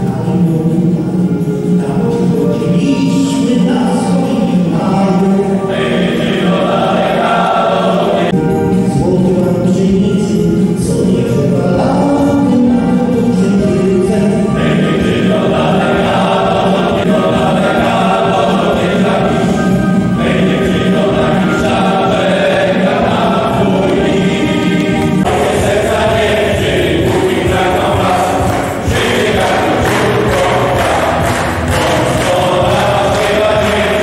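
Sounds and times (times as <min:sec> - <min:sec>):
lead voice on a microphone: 0:00.0 - 0:34.0
men's choir singing sustained chords: 0:00.0 - 0:34.0.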